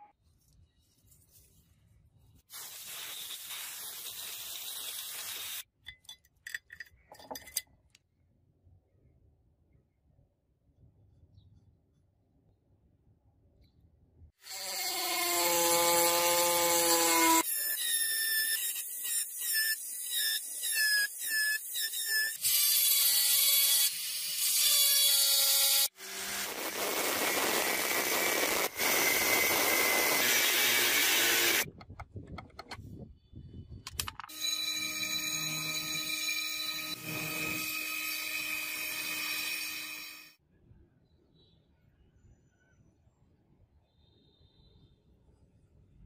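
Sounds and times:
power grinder grinding steel: 14.5 - 31.7, 34.3 - 40.3.

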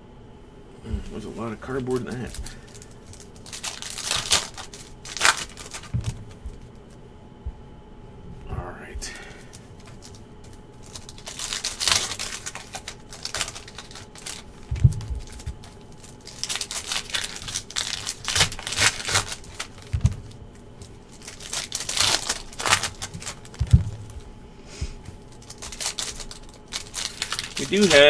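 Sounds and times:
foil wrapper crinkling and tearing: 1.1 - 6.9, 9.0 - 24.3, 25.0 - 28.0
dull thumps: 2.2 - 11.1, 12.2 - 25.3.

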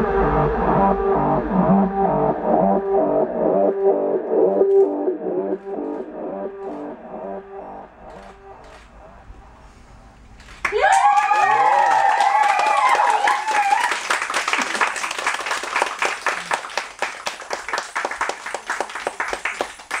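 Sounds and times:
audience clapping: 10.4 - 20.0
high voices cheering: 10.7 - 14.2.

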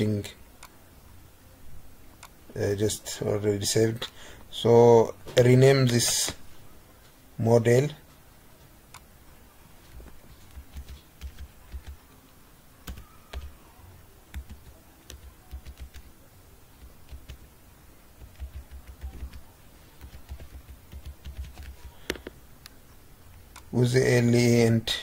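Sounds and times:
computer keyboard typing: 9.9 - 12.1, 12.8 - 13.6, 14.3 - 16.1, 16.8 - 17.5, 18.2 - 22.4.

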